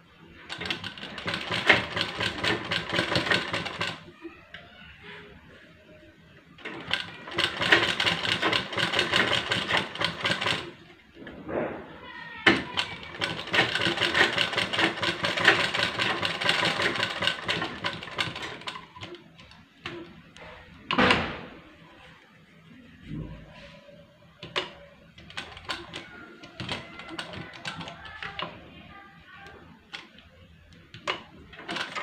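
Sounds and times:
sewing machine stitching: 0.5s - 4.1s, 6.6s - 10.9s, 12.4s - 20.1s, 24.4s - 28.5s, 30.9s - 32.0s.

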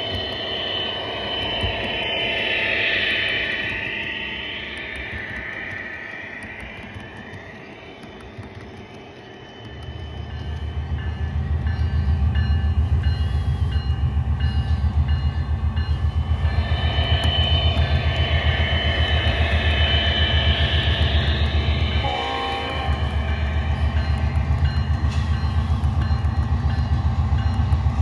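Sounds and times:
model train diesel rumble: 10.2s - 28.0s.

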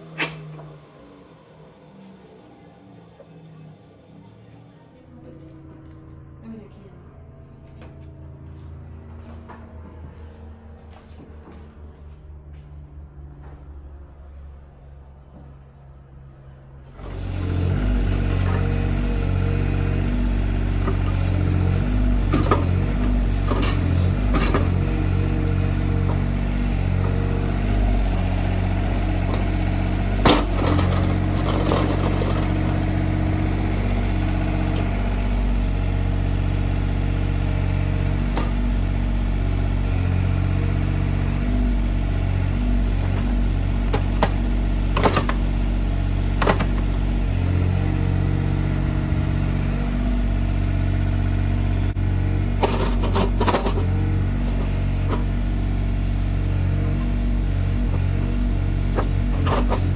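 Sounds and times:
diesel engine running: 0.0s - 59.9s
excavator bucket clanking: 20.8s - 34.0s, 52.5s - 55.3s.

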